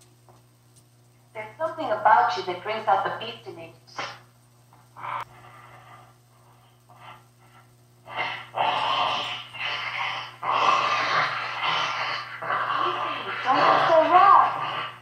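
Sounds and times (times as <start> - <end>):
man's heavy rasping breaths: 5.0 - 10.4.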